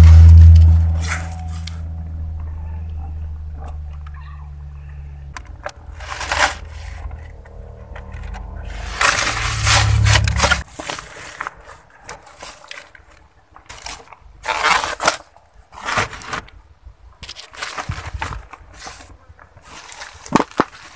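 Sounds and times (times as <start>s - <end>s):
low rumble: 0.0s - 6.0s, 6.7s - 10.6s
rustling and scraping: 0.0s - 20.9s.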